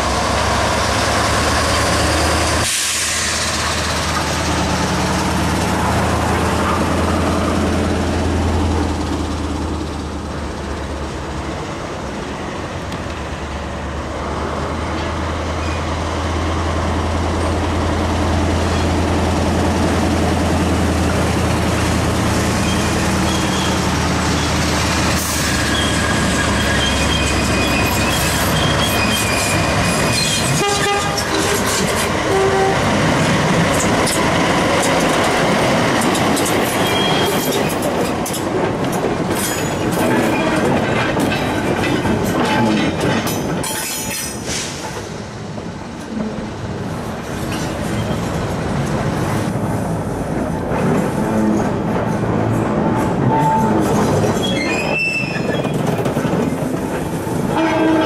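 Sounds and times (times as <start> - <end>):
diesel locomotive engines droning: 0.0 - 58.0
high-pitched wheel squeal: 22.6 - 24.5, 25.4 - 30.6, 53.3 - 55.8.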